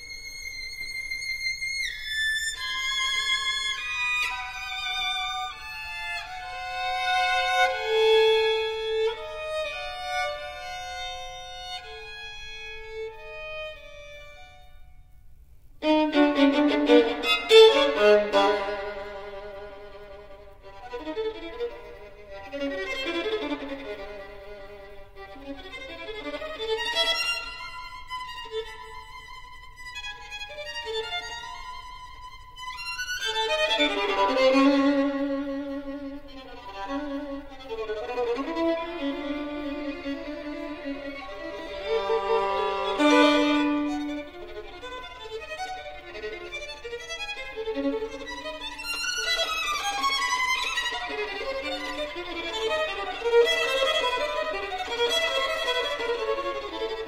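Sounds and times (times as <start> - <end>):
solo violin playing classical piece: 0.0 - 57.0.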